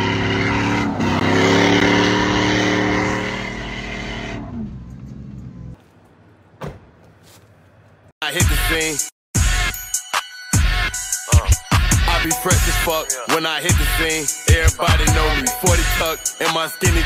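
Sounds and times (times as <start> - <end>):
truck engine revving high: 0.0 - 5.7
tyre and road noise: 0.0 - 8.2.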